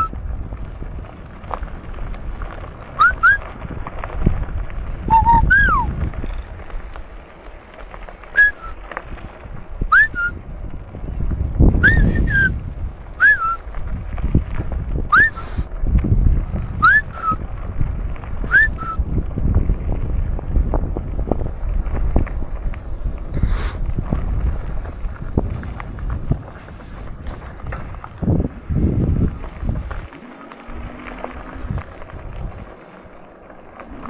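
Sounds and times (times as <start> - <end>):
steady low rumble: 0.0 - 34.0
whistled call rising and falling: 3.0 - 3.4, 5.1 - 5.9, 8.4 - 8.8, 9.9 - 10.4, 11.8 - 12.5, 13.2 - 13.6, 15.1 - 15.6, 16.8 - 17.4, 18.5 - 19.0.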